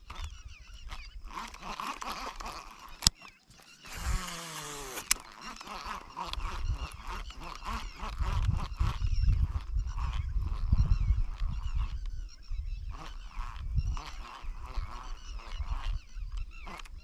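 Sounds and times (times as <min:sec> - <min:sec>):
sharp click: 0:03.0 - 0:05.3.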